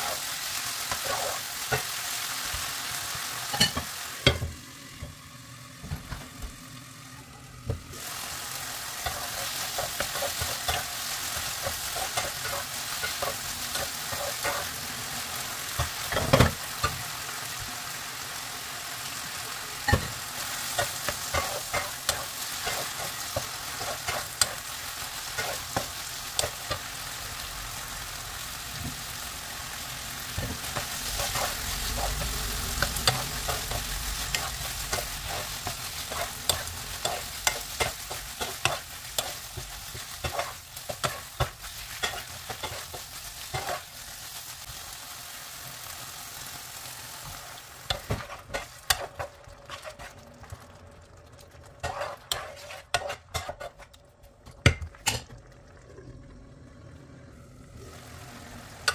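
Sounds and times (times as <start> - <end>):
spatula stirring and scraping: 0.0 - 2.0, 9.0 - 15.0, 19.9 - 26.9, 30.4 - 44.2, 47.2 - 50.4, 51.6 - 54.0
chicken sizzling in oil: 0.0 - 53.9, 57.6 - 58.9.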